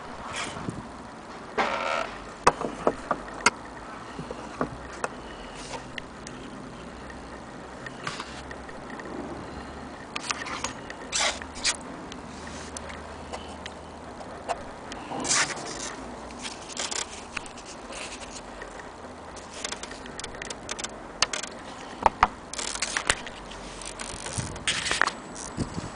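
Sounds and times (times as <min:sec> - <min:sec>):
tone arm clicks and knocks: 0:02.4 - 0:03.6.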